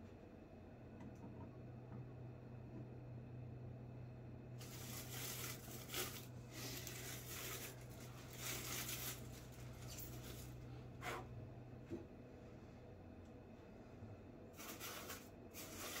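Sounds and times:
packing material rustling: 0:04.6 - 0:10.6.

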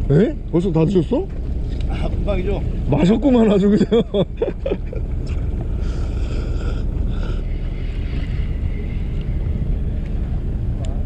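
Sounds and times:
boat engine low rumble: 0:00.0 - 0:11.0
wind on microphone: 0:04.6 - 0:11.0.

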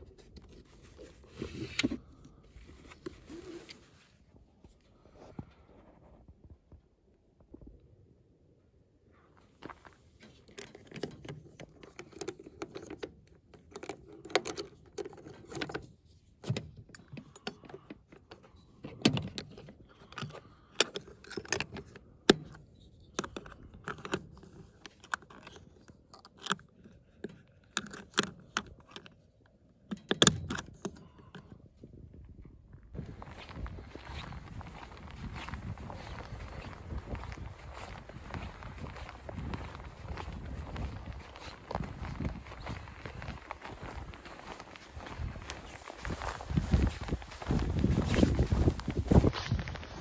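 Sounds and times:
padlock clinking against latch: 0:10.5 - 0:29.2, 0:29.9 - 0:31.5.

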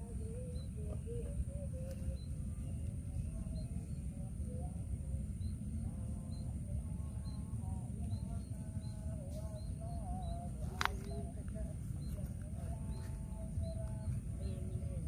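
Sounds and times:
faint wavering tone: 0:00.0 - 0:15.0
steady low rumble: 0:00.0 - 0:15.0
small bird chirping: 0:05.4 - 0:15.0.

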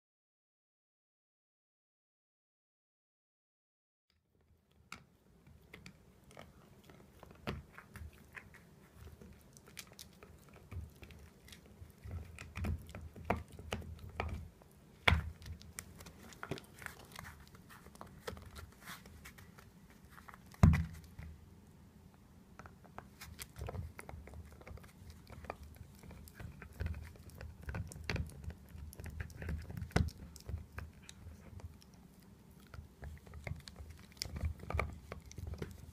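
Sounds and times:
dog teeth gnawing chew toy: 0:05.0 - 0:21.3, 0:22.6 - 0:35.9.

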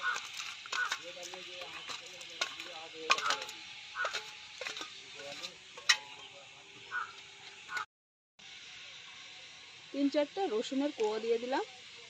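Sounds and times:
bowl clinking against pan: 0:01.8 - 0:06.3.

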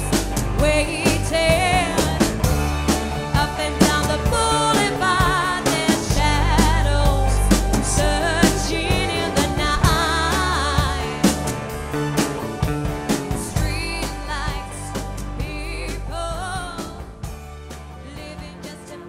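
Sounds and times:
person singing with vibrato: 0:00.0 - 0:11.5
bass guitar: 0:00.0 - 0:19.0
drums: 0:00.0 - 0:19.0.

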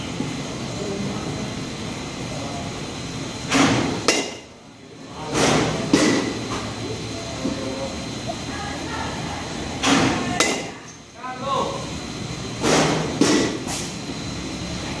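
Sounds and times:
metal bat hitting ball: 0:04.1 - 0:04.4.

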